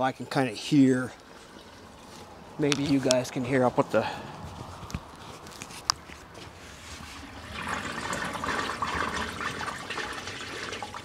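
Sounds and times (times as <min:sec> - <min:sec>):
water rushing through drain: 0:01.3 - 0:02.6, 0:07.0 - 0:11.0.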